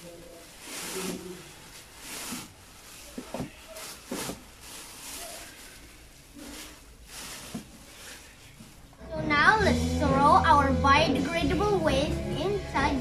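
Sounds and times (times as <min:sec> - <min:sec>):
plastic garbage bag rustling: 0:00.0 - 0:09.8.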